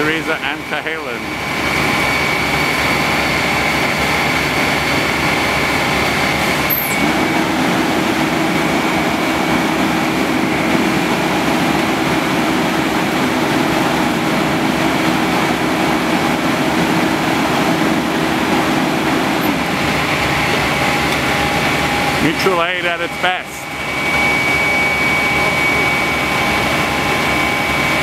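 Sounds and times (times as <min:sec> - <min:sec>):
diesel engine running hard: 0:00.0 - 0:28.0
high squeal: 0:06.3 - 0:07.3, 0:20.8 - 0:28.0.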